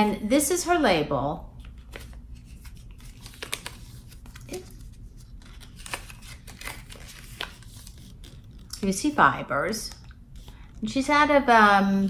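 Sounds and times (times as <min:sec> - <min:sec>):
paper rustling and crinkling: 0:01.6 - 0:08.8.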